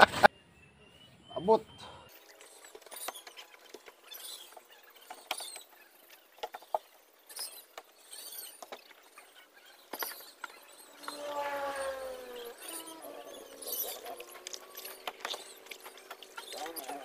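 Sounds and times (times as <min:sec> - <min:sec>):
squeaks and scrapes: 0:02.1 - 0:17.0
falling pitched tone: 0:10.9 - 0:14.7.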